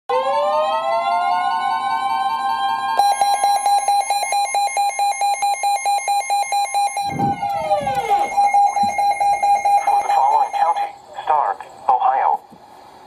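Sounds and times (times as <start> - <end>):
rapid pulsing alert beeps: 3.0 - 11.0.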